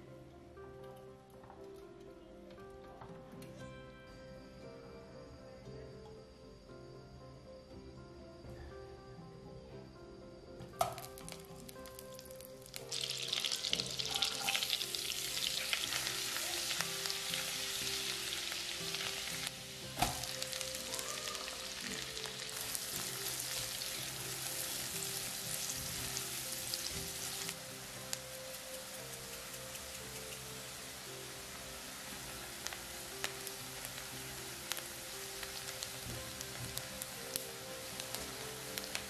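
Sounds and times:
garlic and onion sizzling: 10.8s - 39.0s.

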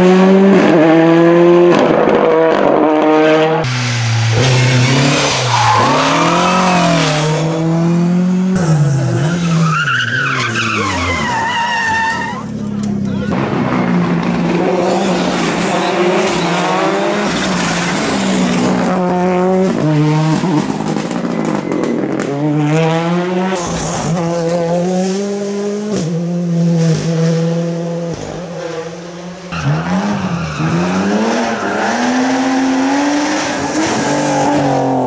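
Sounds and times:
rally car engines revving: 0.0s - 35.0s
tyre squeal: 4.3s - 7.5s, 9.4s - 12.5s.

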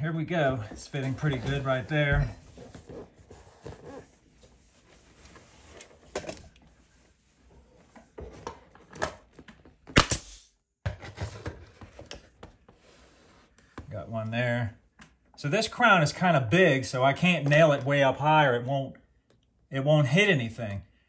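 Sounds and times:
nail gun firing: 9.9s - 10.5s.

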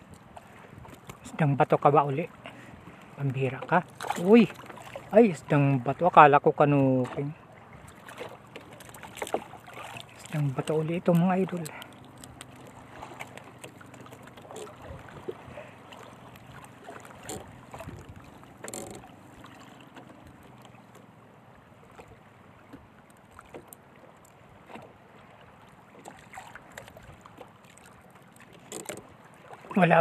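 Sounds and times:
fishing line clicks and rustles: 0.0s - 1.4s, 8.0s - 21.1s, 26.0s - 29.2s
water around a boat: 0.0s - 30.0s
wind: 0.0s - 30.0s.

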